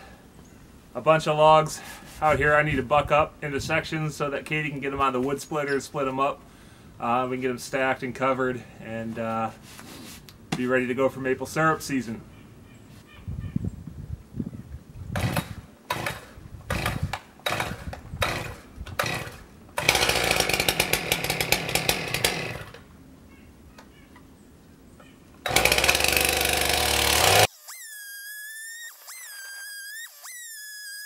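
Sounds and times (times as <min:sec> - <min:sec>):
chainsaw engine revving: 0:15.2 - 0:22.8, 0:25.4 - 0:27.9
chainsaw starter cord pulls: 0:15.2 - 0:22.9, 0:25.4 - 0:27.9.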